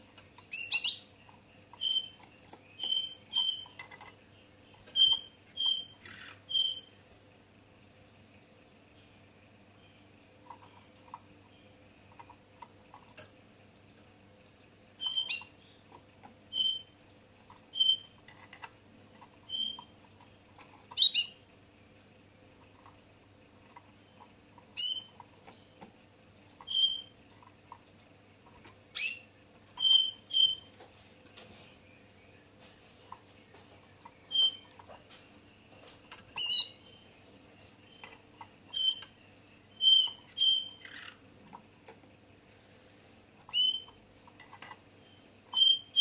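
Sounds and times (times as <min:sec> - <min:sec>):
finch chirping: 0:00.1 - 0:07.0, 0:15.0 - 0:21.4, 0:23.6 - 0:25.9, 0:26.5 - 0:27.5, 0:28.4 - 0:30.8, 0:33.1 - 0:35.0, 0:35.7 - 0:41.2, 0:43.4 - 0:46.0.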